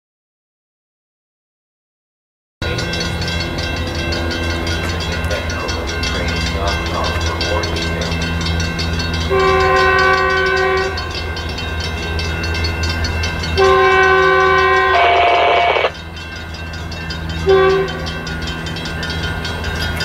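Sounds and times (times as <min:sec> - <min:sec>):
steady low rumble: 0:02.6 - 0:13.6
train horn blasts: 0:09.2 - 0:11.4, 0:13.6 - 0:16.0, 0:17.4 - 0:18.2.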